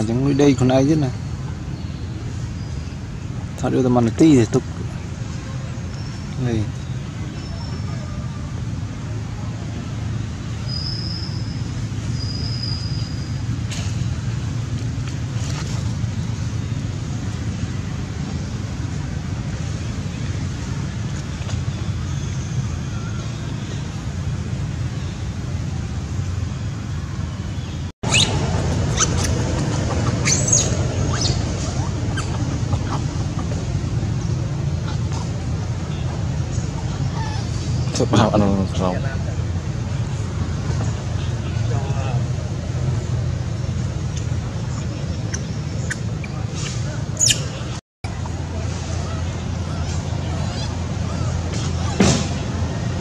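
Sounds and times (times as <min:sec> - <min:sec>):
low outdoor rumble: 0:00.0 - 0:53.0
high-pitched animal squeaks: 0:28.1 - 0:33.1.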